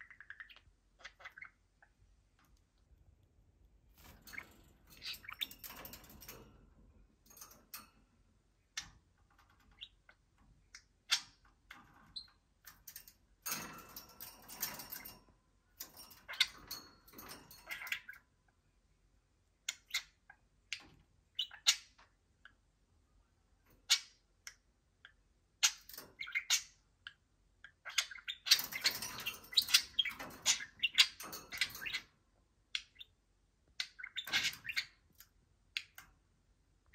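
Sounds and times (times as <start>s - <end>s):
budgerigars warbling and chattering: 0.0s - 2.0s, 4.0s - 6.4s, 16.0s - 18.2s, 27.6s - 32.1s, 33.8s - 35.1s
beak tapping on plastic keys: 4.0s - 18.1s.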